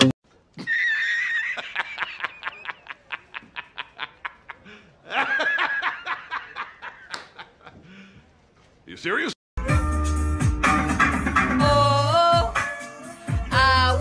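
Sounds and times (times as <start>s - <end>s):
man laughing hard: 0.6s - 7.9s.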